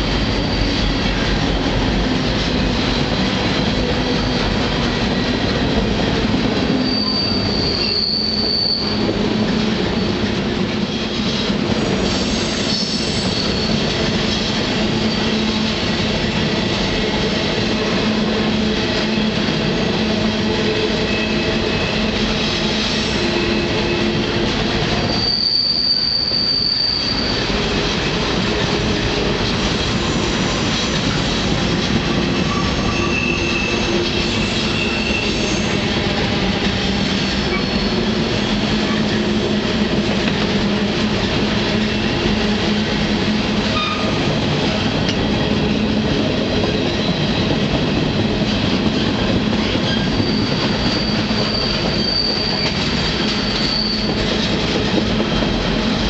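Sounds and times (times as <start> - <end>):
steel wheel squeal: 6.7 - 9.1, 12.0 - 14.0, 25.0 - 27.6, 32.4 - 36.0, 37.2 - 38.2, 49.6 - 54.3.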